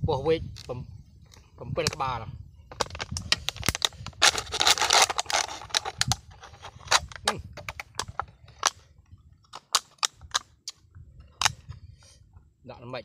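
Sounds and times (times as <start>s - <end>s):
plastic packet crinkling: 2.8s - 7.2s.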